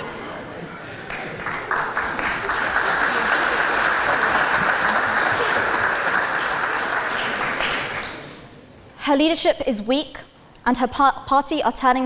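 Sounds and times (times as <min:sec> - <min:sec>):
audience applauding: 0:01.0 - 0:08.5.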